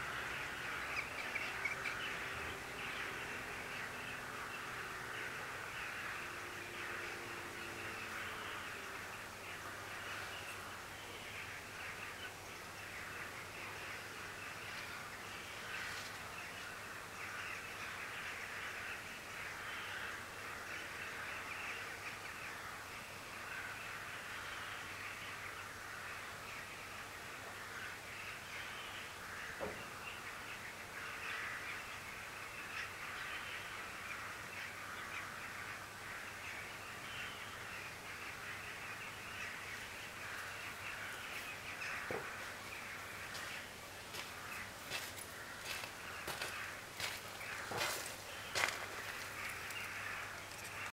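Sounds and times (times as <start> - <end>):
chorus of animal calls: 0.0 - 50.9.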